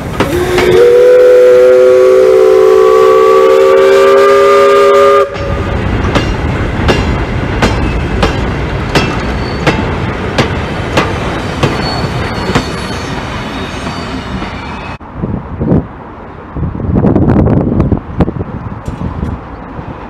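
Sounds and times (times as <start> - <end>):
two-note steam whistle: 0.2 - 5.8.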